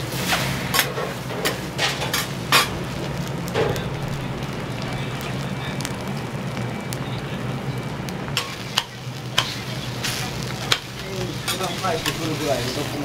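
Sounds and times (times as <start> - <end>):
food sizzling on a griddle: 0.0 - 13.0
metal spatulas clacking on griddle: 11.5 - 12.3.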